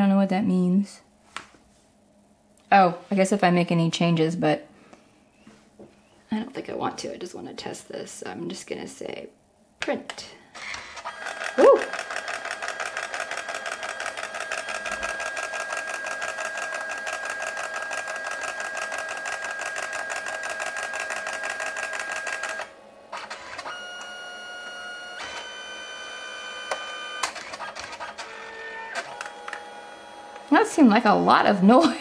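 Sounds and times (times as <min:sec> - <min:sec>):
printer motor whine: 0:10.6 - 0:30.6
printer feed motor ticking: 0:10.8 - 0:30.6.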